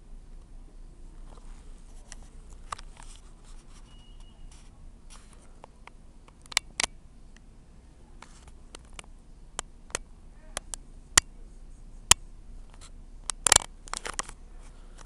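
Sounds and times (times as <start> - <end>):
low steady hum: 0.0 - 15.0
faint high beep: 3.8 - 4.6
sharp clicks: 5.6 - 7.5, 8.7 - 11.3, 13.2 - 14.4.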